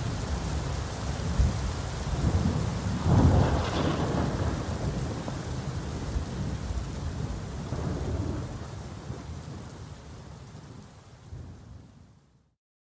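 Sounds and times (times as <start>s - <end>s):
thunder rumbling: 0.0s - 12.0s
heavy rain pouring: 0.0s - 12.5s.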